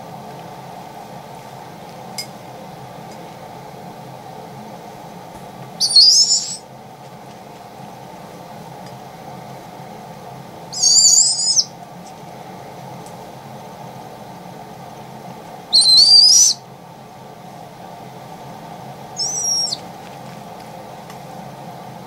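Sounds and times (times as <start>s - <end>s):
baby owl squeaky calls: 5.8s - 6.7s, 10.7s - 11.7s, 15.7s - 16.6s, 19.2s - 19.8s.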